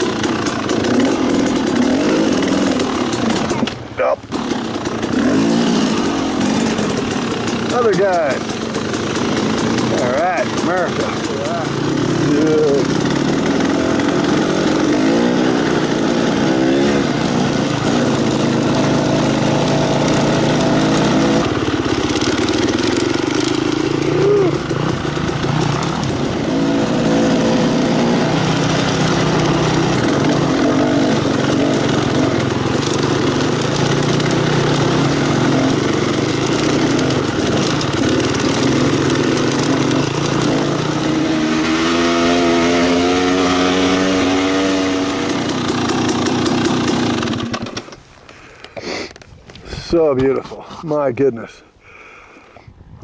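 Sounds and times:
two-stroke dirt bike engine: 0.0s - 49.2s.

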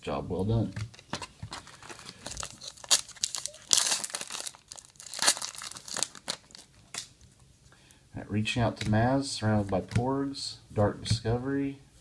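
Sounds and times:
foil wrapper crinkling and tearing: 0.9s - 7.2s.

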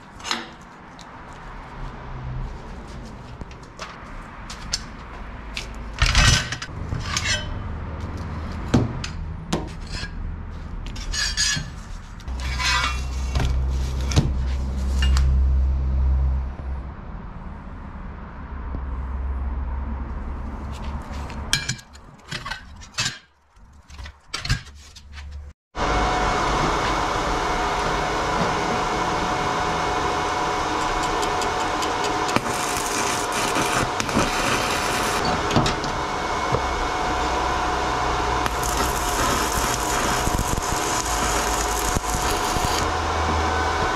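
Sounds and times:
steel plates clinking and scraping: 6.0s - 7.6s, 11.0s - 13.4s
welding arc crackling: 30.7s - 35.2s, 38.4s - 43.0s.

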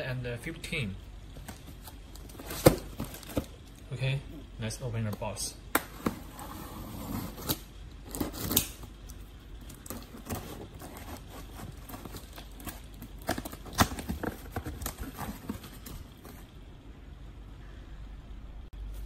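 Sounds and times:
box cutter slitting tape: 7.0s - 8.9s.

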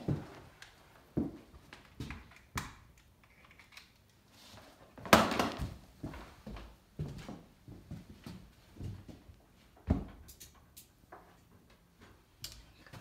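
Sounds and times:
footsteps: 5.5s - 10.2s.

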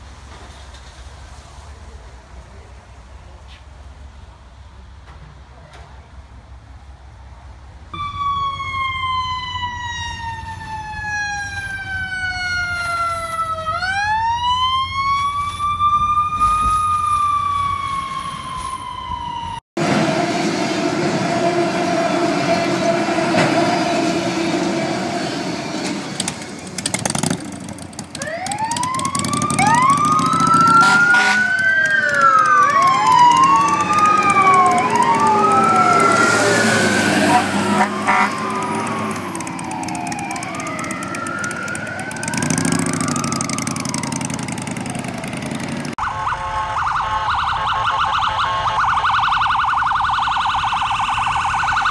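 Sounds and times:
electronic wail sirens: 8.0s - 24.3s, 28.1s - 51.9s
freight train passing: 19.3s - 46.0s.

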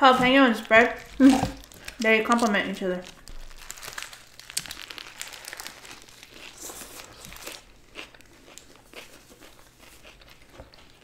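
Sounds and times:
paper wrappers crinkling: 0.1s - 9.5s
chewing with mouth clicks: 4.5s - 11.0s.

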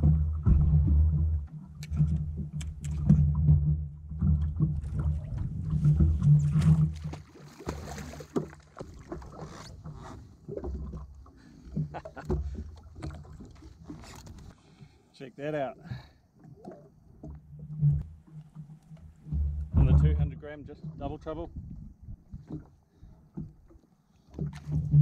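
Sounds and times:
gusty low rumble: 0.0s - 7.1s, 19.3s - 22.4s
water splashing: 0.0s - 25.0s.

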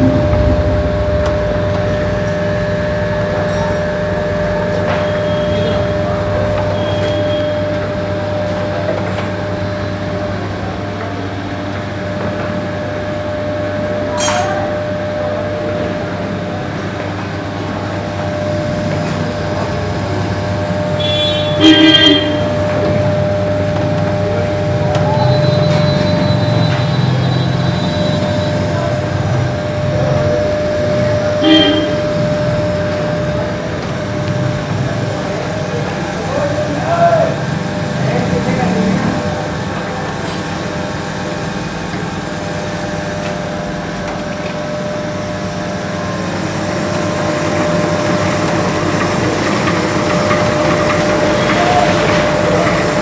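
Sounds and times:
burst of machine noise: 0.0s - 7.6s
machine hum and whine: 0.0s - 53.0s.

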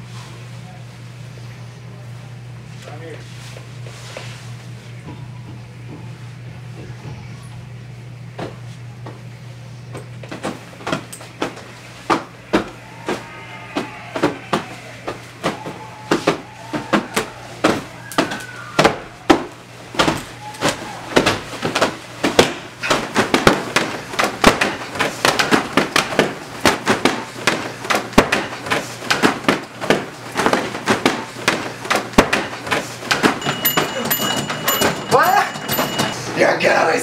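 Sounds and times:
fists beating pillows: 10.3s - 36.2s.

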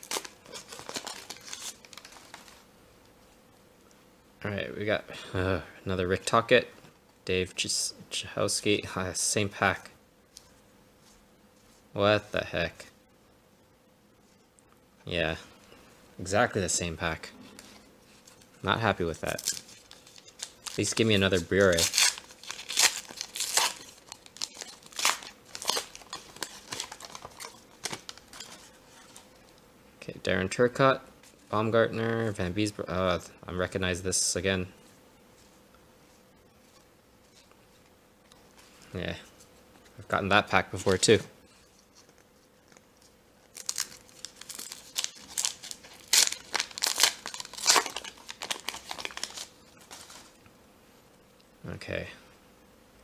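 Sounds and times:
foil wrapper tearing and crinkling: 0.0s - 2.6s, 18.2s - 29.3s, 41.8s - 50.4s.

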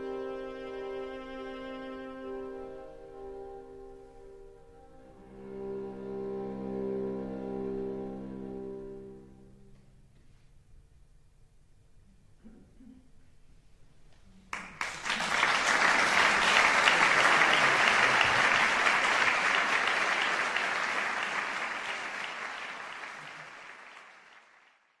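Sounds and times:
audience applauding: 14.5s - 25.0s.

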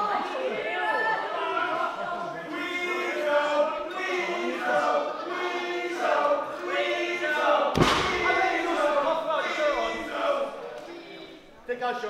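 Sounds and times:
crowd chanting: 0.0s - 12.0s
heavy thump: 7.8s - 8.8s.

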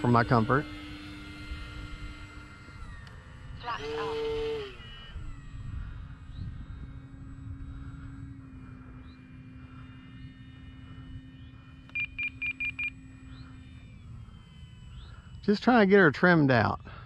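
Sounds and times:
model plane motor drone: 0.0s - 17.0s
short high beeps: 11.9s - 13.0s.

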